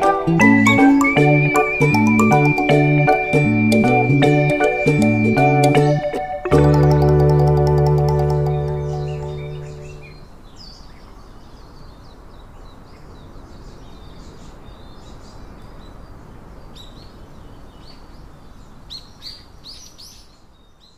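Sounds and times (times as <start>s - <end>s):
outdoor ambience hiss: 0.0s - 20.9s
small birds chirping: 7.8s - 20.9s.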